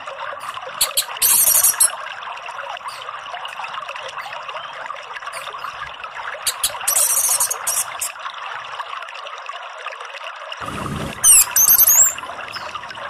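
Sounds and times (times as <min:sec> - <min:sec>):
steady trickling: 0:00.0 - 0:13.0.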